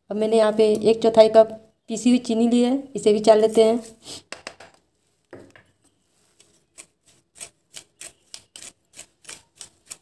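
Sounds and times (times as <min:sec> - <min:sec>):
spoon scraping metal mesh sieve: 0:06.3 - 0:10.0.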